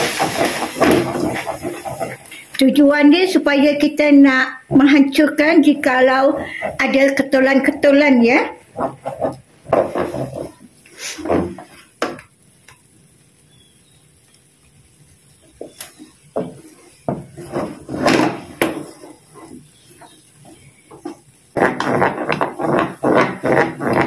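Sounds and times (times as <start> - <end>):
spatula scraping a wok: 0.0 - 2.5, 4.5 - 12.0, 15.4 - 24.0.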